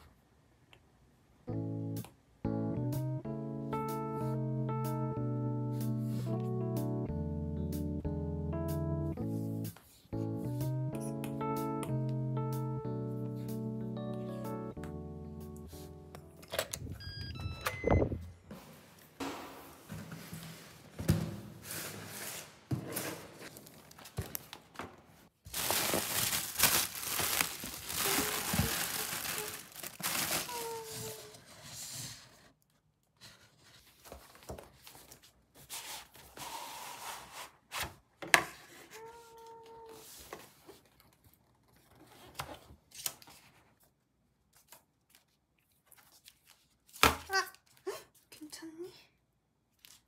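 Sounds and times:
packaging tearing and crinkling: 25.5 - 31.2.

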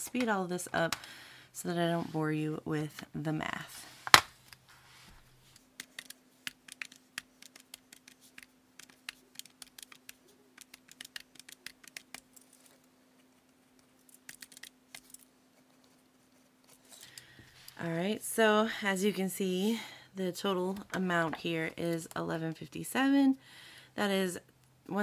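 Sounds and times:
calculator keys clicking: 5.8 - 12.3.

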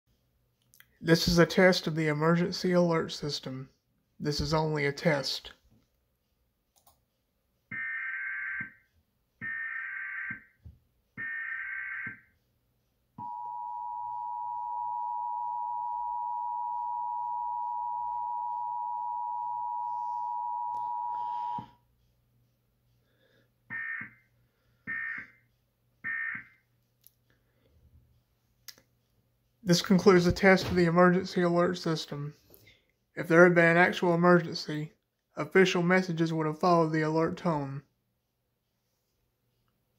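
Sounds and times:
two-tone attention signal: 13.2 - 21.7.

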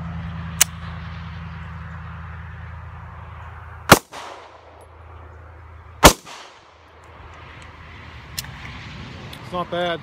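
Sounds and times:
pistol shots with echo: 3.9 - 4.8, 6.0 - 6.7.

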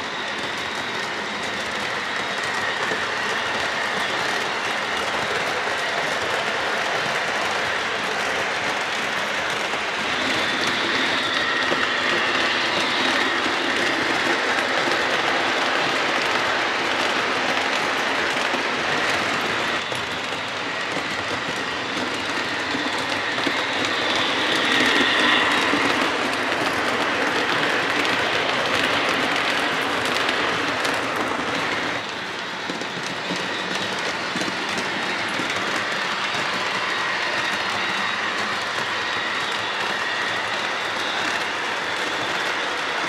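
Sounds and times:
high whine: 19.2 - 31.2.

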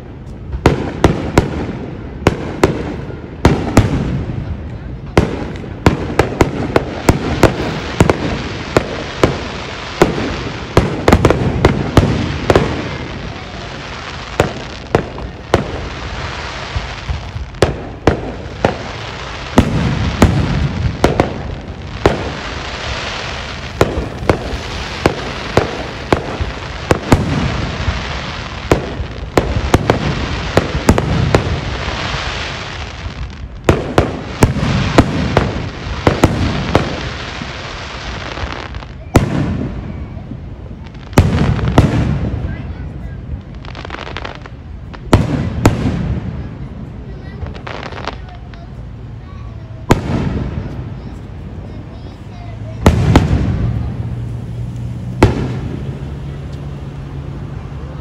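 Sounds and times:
fireworks bangs: 0.0 - 58.0
fireworks crackle and rumble: 0.0 - 58.0.

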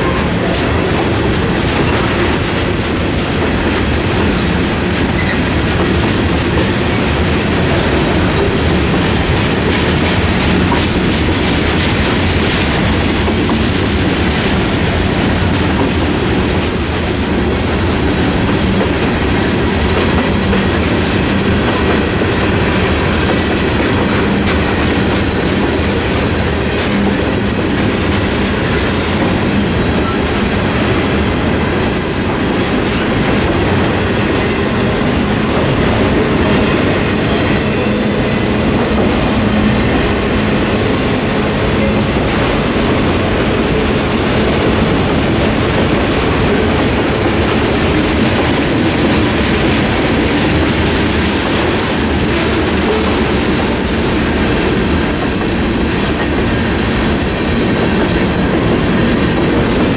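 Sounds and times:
freight train rumbling past: 0.0 - 59.9.

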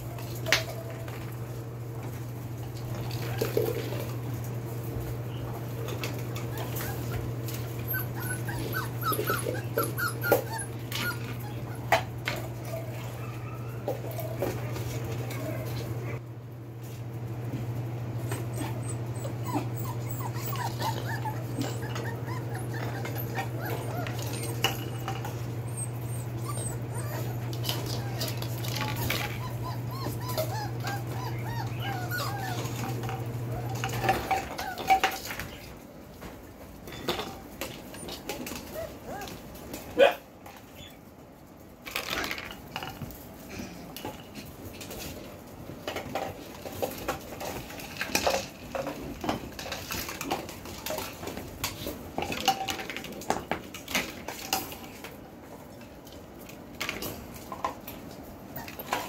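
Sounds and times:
puppies whimpering and yipping: 0.0 - 1.9, 5.5 - 16.2, 18.2 - 35.7, 37.3 - 39.8, 58.4 - 59.0.

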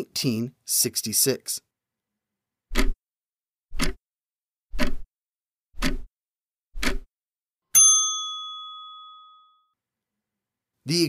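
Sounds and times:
clock ticking: 2.7 - 3.0, 3.7 - 4.0, 4.8 - 5.1, 5.8 - 6.1, 6.8 - 7.1
bell ding: 7.7 - 9.8.

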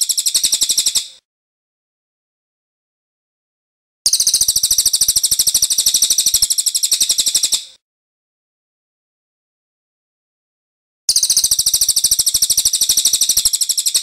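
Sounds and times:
songbird rattle call: 0.0 - 1.2, 4.1 - 7.8, 11.1 - 14.0.

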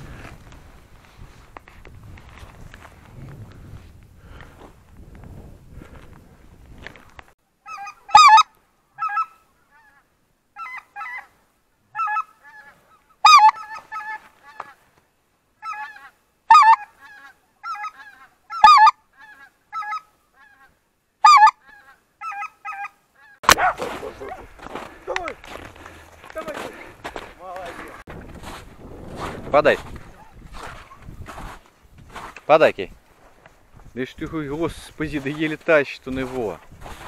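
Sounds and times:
geese honking: 7.6 - 14.8, 15.6 - 28.0.

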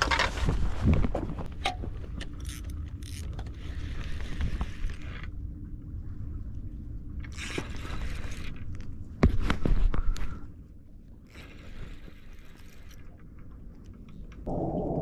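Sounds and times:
fishing reel clicking: 2.4 - 5.3, 7.3 - 8.6, 11.3 - 13.0
low rumble: 14.4 - 15.0.

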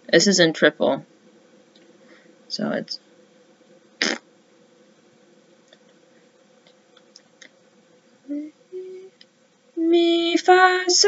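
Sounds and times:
faint steady hum: 0.0 - 11.0
short sharp hiss: 4.0 - 4.2.

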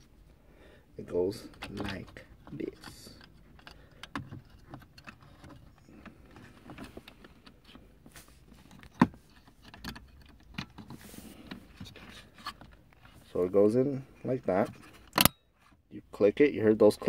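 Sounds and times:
wiring rustling: 1.0 - 15.6.

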